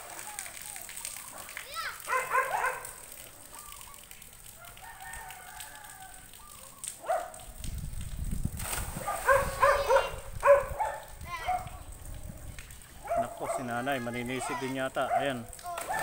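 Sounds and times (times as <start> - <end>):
dog barking: 1.3 - 3.1, 4.6 - 5.2, 7.0 - 7.5, 9.0 - 11.8, 13.0 - 16.0
rooster crowing: 4.6 - 6.4.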